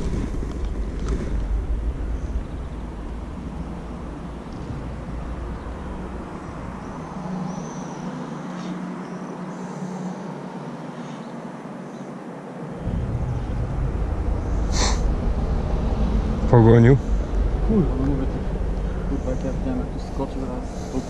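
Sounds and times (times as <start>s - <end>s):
low rumble: 0.0s - 8.0s, 12.8s - 21.0s
outdoor background noise: 0.0s - 21.0s.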